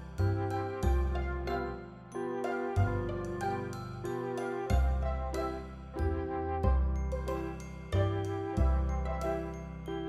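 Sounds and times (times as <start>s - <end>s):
bass line: 0.0s - 1.8s, 4.7s - 9.8s.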